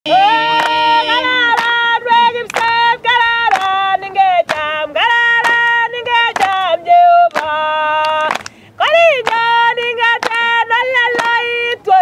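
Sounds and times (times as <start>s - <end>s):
women singing unaccompanied: 0.1s - 12.0s
sharp hand claps: 1.5s - 2.8s, 3.5s - 3.8s, 4.4s - 4.7s, 5.3s - 6.7s, 7.3s - 8.6s, 9.2s - 9.5s, 10.1s - 10.5s, 11.1s - 11.5s.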